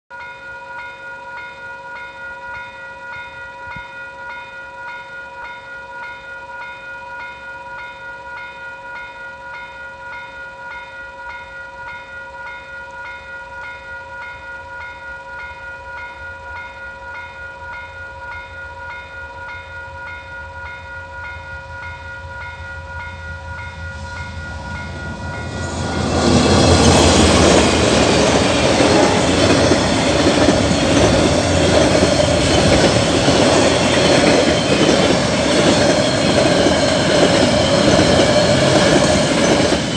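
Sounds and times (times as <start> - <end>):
level crossing warning bell: 0.1 - 39.9
freight train rumbling: 18.8 - 39.9
locomotive and wheels rushing: 22.3 - 39.9.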